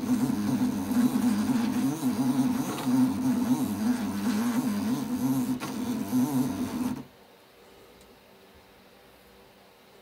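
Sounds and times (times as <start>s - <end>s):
motor humming: 0.0s - 7.1s.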